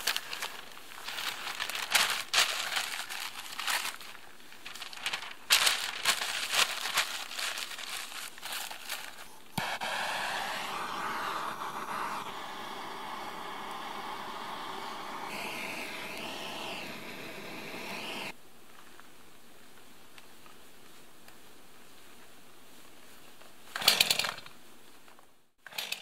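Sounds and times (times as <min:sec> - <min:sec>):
newspaper crumpling: 0:00.0 - 0:09.4
gas torch hissing: 0:09.2 - 0:18.4.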